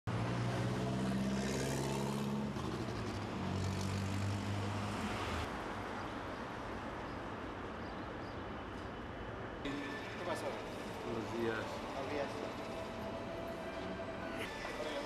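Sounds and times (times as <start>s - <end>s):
heavy vehicle engine humming: 9.7s - 15.0s.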